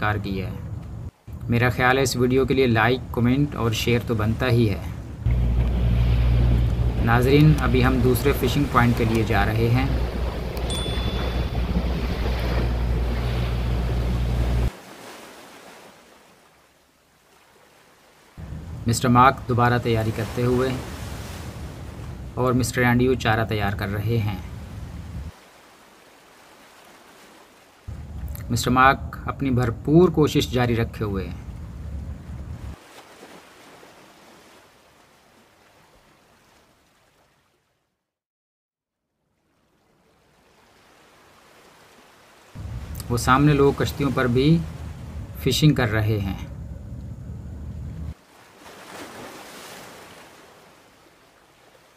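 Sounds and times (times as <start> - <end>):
faint sea noise: 0.0 - 38.0, 39.1 - 51.9
water rushing past boat: 3.6 - 29.2, 39.5 - 46.8
wind buffeting microphone: 4.8 - 14.7, 31.4 - 32.8, 42.6 - 45.5
wind hiss: 42.6 - 48.2.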